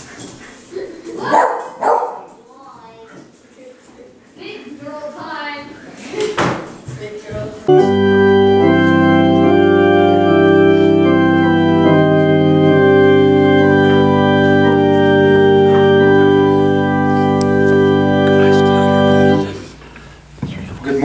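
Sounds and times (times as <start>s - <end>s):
church organ sustained chords: 7.7s - 19.8s.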